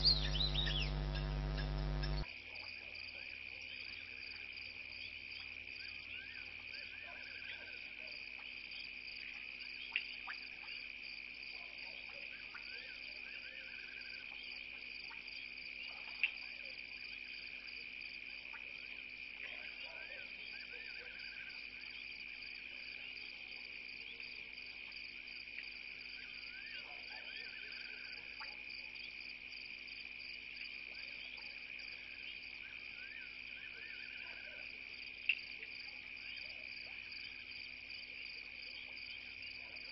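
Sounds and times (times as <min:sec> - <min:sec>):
sharp clicks: 0:00.0 - 0:02.2
crickets trilling: 0:00.0 - 0:39.9
animal call: 0:32.7 - 0:34.7.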